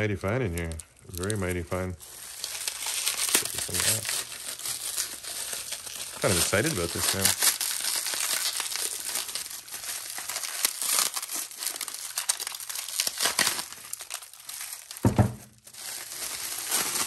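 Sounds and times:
bubble wrap crinkling: 0:00.0 - 0:17.0
dull thump: 0:15.0 - 0:15.5.

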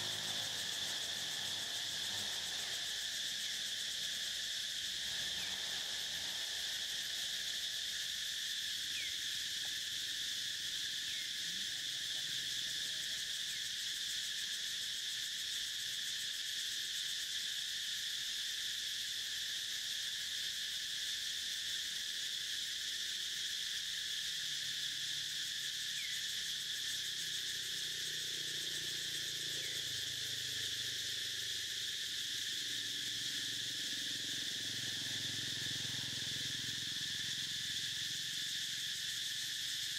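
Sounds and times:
insect chorus drone: 0:00.0 - 0:39.9.

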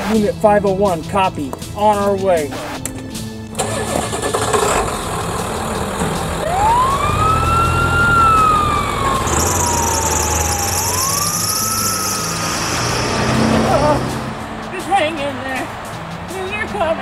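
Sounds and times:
vehicle engine running: 0:03.5 - 0:16.3
ambulance siren wailing: 0:05.3 - 0:16.4.

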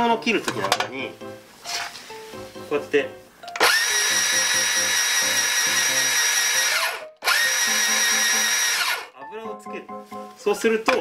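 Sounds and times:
band saw motor whining: 0:03.6 - 0:09.2.

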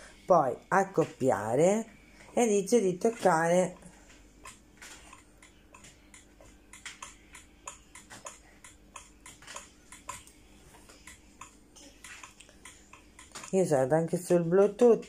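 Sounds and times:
fingers tapping phone and glass: 0:04.4 - 0:10.4.

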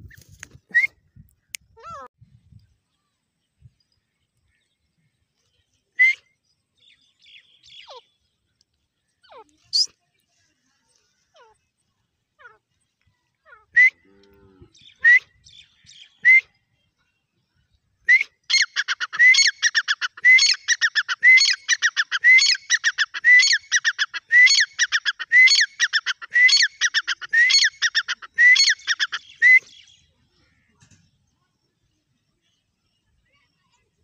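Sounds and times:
francolin calling: 0:18.5 - 0:30.7.

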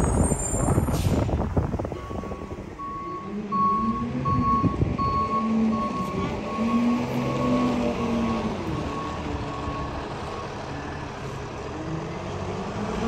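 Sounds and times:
reversing alarm beeping: 0:02.0 - 0:10.7.

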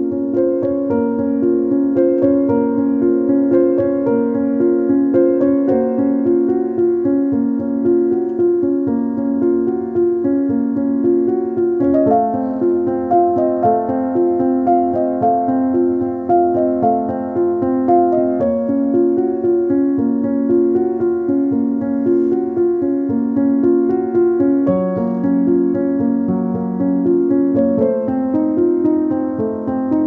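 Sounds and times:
piano-like keyboard music: 0:00.0 - 0:30.0.

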